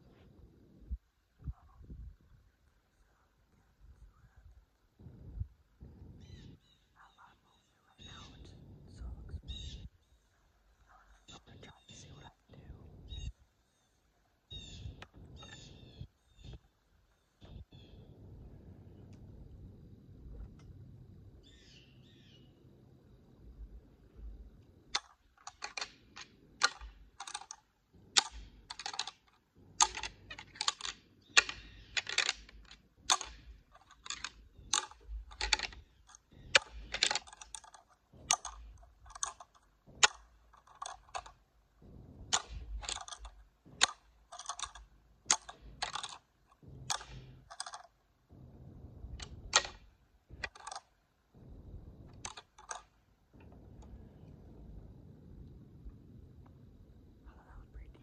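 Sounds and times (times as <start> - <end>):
deer antlers clacking together: 24.9 - 48.0, 49.1 - 51.0, 52.1 - 52.9.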